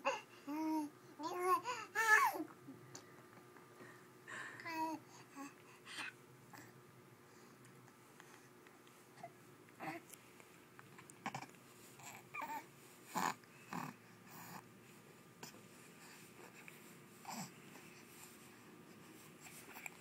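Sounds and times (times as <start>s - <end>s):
baby cooing and grunting: 0.0s - 2.5s, 11.2s - 14.6s, 17.2s - 17.6s.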